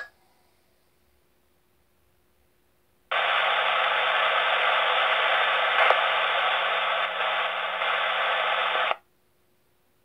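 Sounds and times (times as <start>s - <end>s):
radio hiss: 3.1s - 9.0s.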